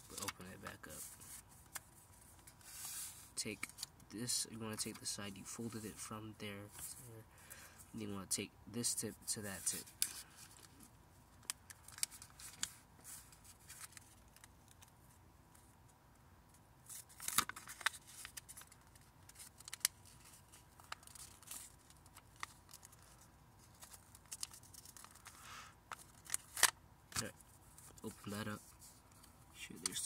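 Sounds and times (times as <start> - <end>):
paper being folded and creased: 0.0 - 3.9, 11.7 - 14.9, 16.9 - 30.0.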